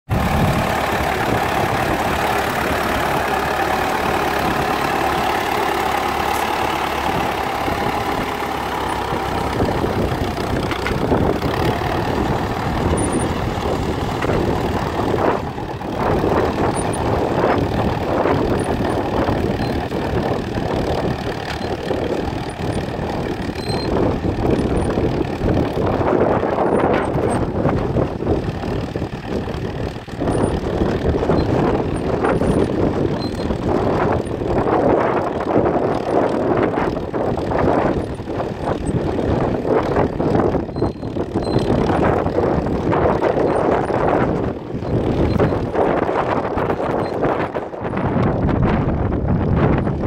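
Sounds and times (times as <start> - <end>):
tractor engine under load: 0.1 - 50.0
wind buffeting microphone: 0.1 - 50.0.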